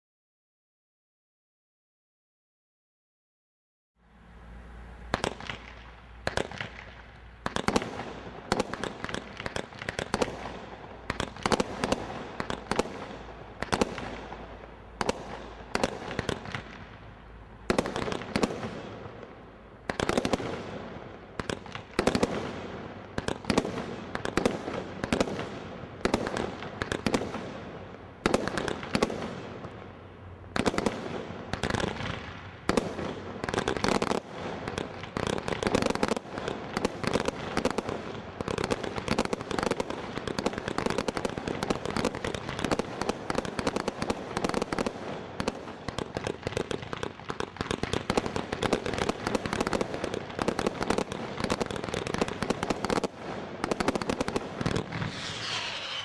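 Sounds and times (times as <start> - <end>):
fireworks launching and bursting: 5.1 - 29.8, 30.5 - 56.0.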